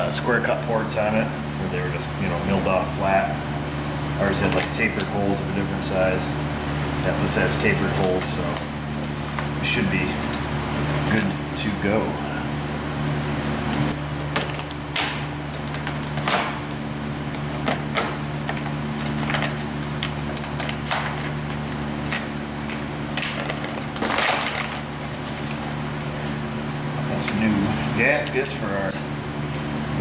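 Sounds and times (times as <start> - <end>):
steady low hum: 0.0 - 30.0
cardboard packing rustling: 14.3 - 26.4.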